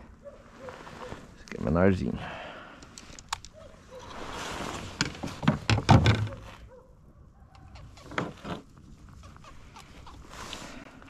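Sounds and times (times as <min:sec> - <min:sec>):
knocks and thumps on a kayak: 0:05.0 - 0:06.4.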